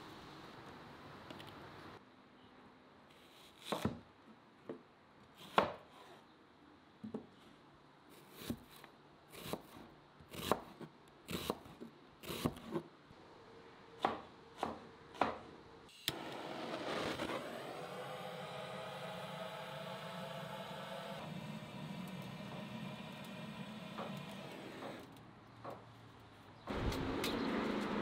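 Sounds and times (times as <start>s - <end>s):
knife slicing onion on board: 8.2s - 12.8s
steady noise: 16.2s - 20.9s.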